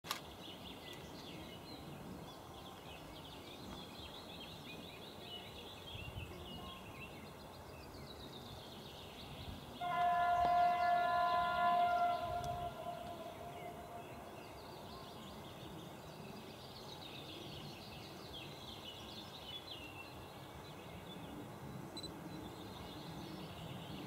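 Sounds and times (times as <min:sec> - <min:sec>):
birds chirping and singing: 0:00.4 - 0:21.4
locomotive horn: 0:09.8 - 0:14.3.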